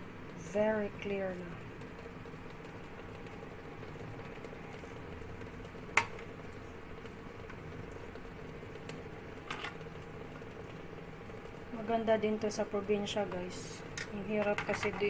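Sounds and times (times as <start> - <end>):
steady hum: 0.0 - 15.0.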